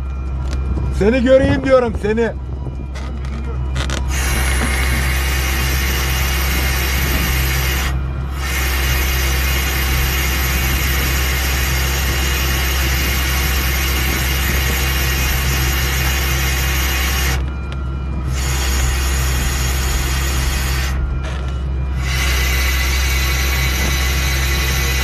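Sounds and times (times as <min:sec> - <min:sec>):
diesel truck engine running: 0:00.0 - 0:25.0
hydraulic hiss: 0:22.0 - 0:25.0.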